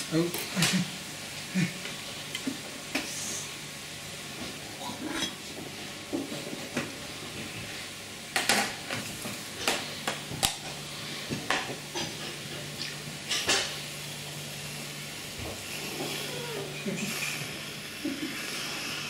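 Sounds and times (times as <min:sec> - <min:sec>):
plate and utensils clattering: 0:13.3 - 0:13.7.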